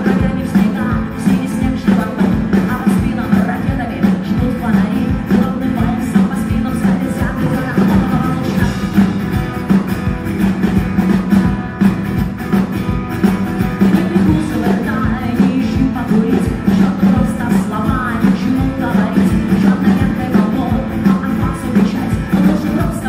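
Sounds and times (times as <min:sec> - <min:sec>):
woman singing: 0:00.0 - 0:09.2, 0:13.8 - 0:23.0
strummed acoustic guitar: 0:00.0 - 0:23.0.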